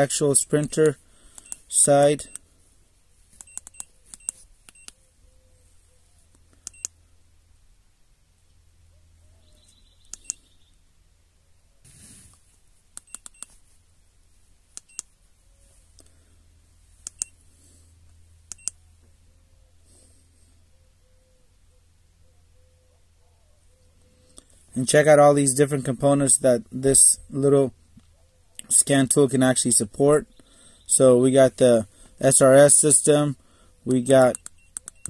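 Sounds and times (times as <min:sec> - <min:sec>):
button clicks: 0:03.4 - 0:05.0, 0:10.1 - 0:10.4, 0:13.0 - 0:13.6, 0:18.5 - 0:18.8, 0:34.3 - 0:35.0.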